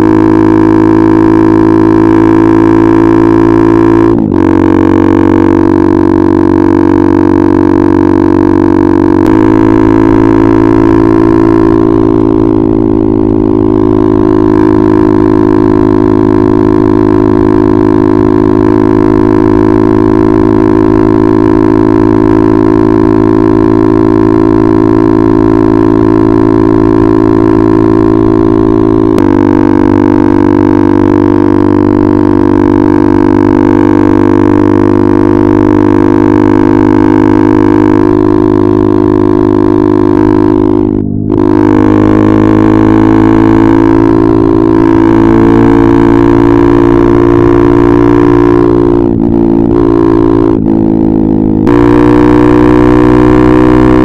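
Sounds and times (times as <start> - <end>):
motorcycle engine droning: 0.0 - 54.0.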